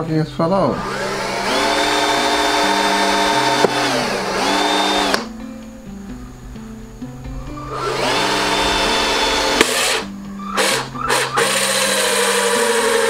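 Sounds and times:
background music: 0:00.0 - 0:13.0
cordless drill cutting plastic: 0:00.7 - 0:05.3, 0:07.6 - 0:13.0.

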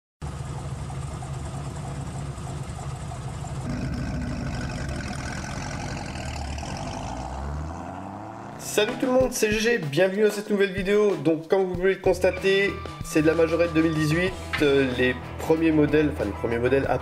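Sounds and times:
car engine idling: 0:00.2 - 0:08.8.

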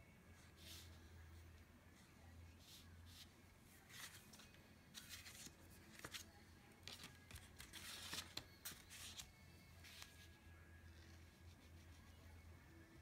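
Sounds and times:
paper card rustling and tapping: 0:03.9 - 0:10.2.

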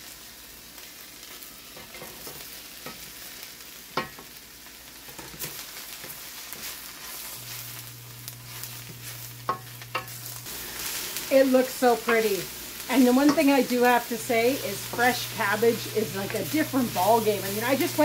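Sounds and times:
vegetables sizzling in a wok: 0:00.0 - 0:18.0.

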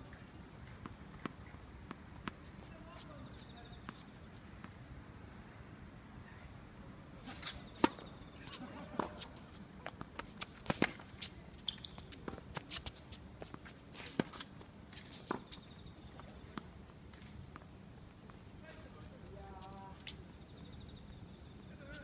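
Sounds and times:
tennis ball bouncing: 0:07.3 - 0:14.5
quick footsteps on court: 0:07.3 - 0:20.2.

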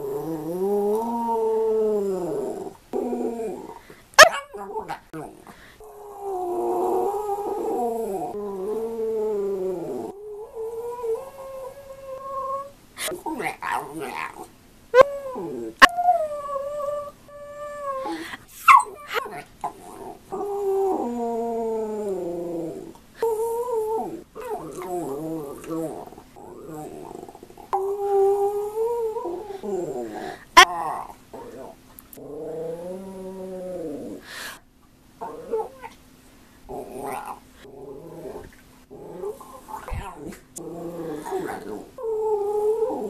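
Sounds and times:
dog yipping: 0:04.2 - 0:04.5.

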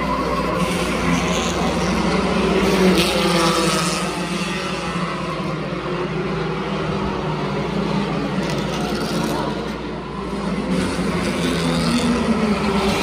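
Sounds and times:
race car engines: 0:00.0 - 0:13.0
race car passing by: 0:00.0 - 0:13.0.

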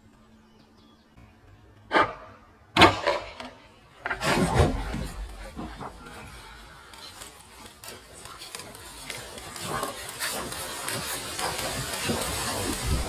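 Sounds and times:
wood cracking and rumbling: 0:02.8 - 0:13.0.

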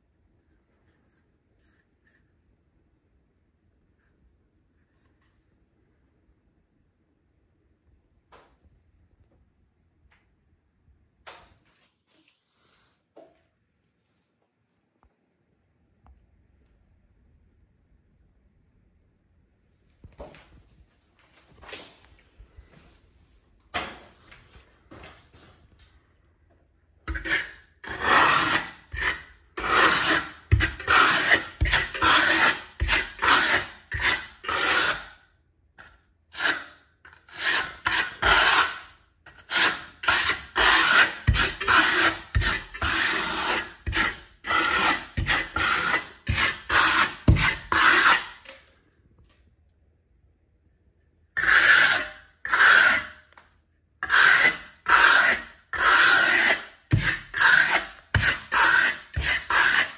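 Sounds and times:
trowel scraping plaster: 0:27.1 - 0:35.2, 0:35.8 - 0:48.7, 0:51.4 - 0:53.4, 0:54.0 - 0:59.9.

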